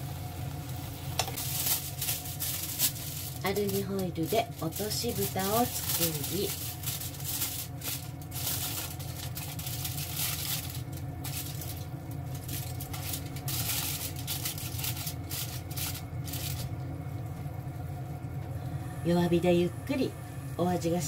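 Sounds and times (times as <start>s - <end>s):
sauce bubbling in a frying pan: 0.0s - 3.4s, 6.6s - 18.9s
low steady hum: 0.0s - 21.0s
aluminium foil crinkling: 1.2s - 17.5s.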